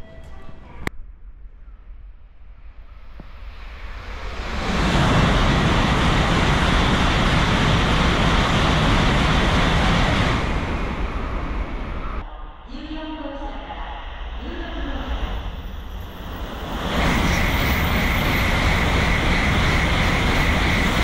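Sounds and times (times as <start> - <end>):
high-speed train rushing past: 3.3 - 12.4, 13.7 - 21.0.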